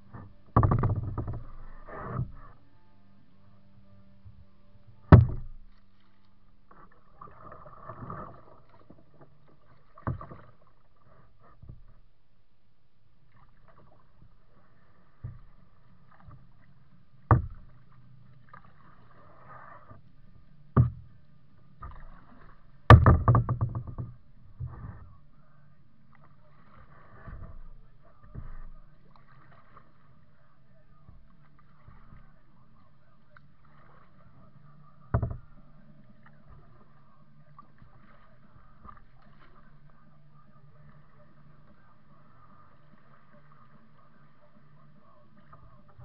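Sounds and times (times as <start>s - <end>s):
paddle splashing and dripping: 0.0s - 46.0s
sharp knocks on kayak: 0.6s - 2.3s, 5.1s - 5.7s, 17.3s - 17.7s, 20.8s - 21.1s, 22.9s - 24.8s, 35.1s - 35.5s.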